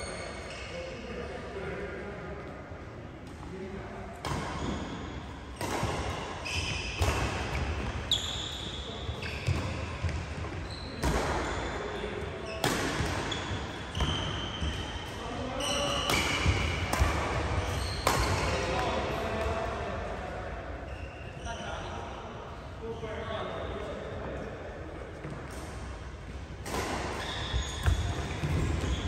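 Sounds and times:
court shoes squeaking: 0.0s - 1.3s, 4.2s - 19.6s, 20.8s - 22.0s, 25.2s - 29.0s
racquets hitting shuttlecock: 16.0s - 19.5s.

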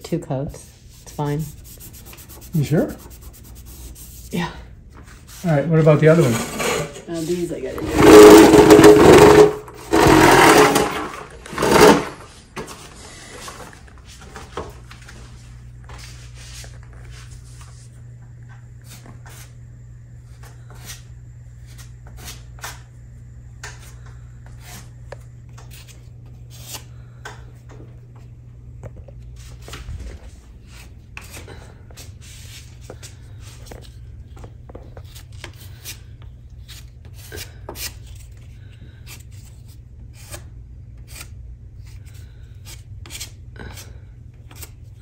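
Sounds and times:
low steady hum: 0.0s - 45.0s
putty knife scraping wall: 5.9s - 12.3s.

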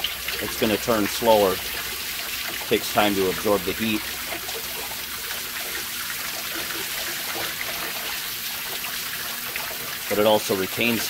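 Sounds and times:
water splashing through wire rack: 0.0s - 11.0s.

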